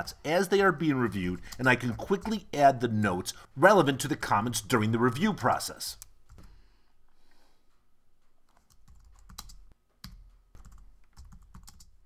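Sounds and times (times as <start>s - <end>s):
typing on keyboard: 8.5s - 12.0s.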